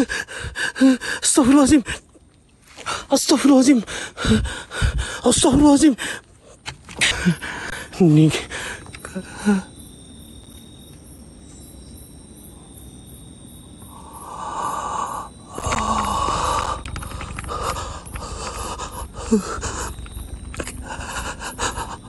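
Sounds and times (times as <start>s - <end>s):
person breathing heavily: 0.0s - 1.3s, 3.8s - 5.3s, 5.9s - 9.7s, 13.8s - 22.0s
low steady background noise: 0.0s - 22.0s.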